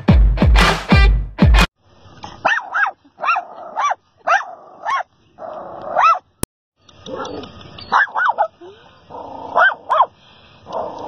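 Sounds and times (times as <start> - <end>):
small dog yapping: 2.4 - 5.1, 5.7 - 6.2, 7.1 - 8.6, 9.5 - 10.1.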